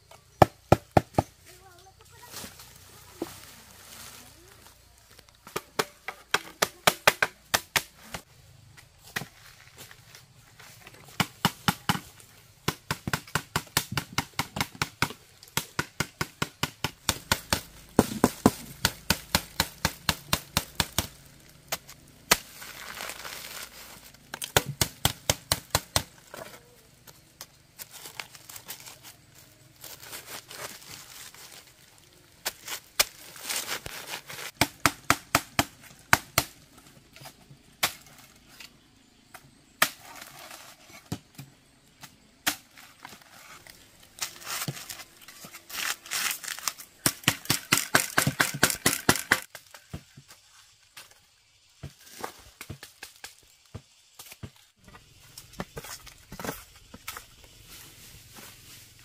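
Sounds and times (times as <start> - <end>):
rustling: 1.5 - 5.5, 17.0 - 34.6, 42.6 - 49.7, 54.2 - 59.0.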